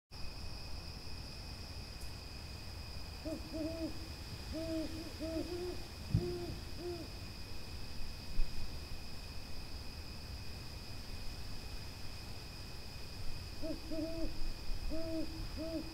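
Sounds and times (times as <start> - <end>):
high-pitched insect drone: 3.1 - 8.3, 12.6 - 15.9
owl hooting: 3.2 - 7.1, 13.6 - 15.9.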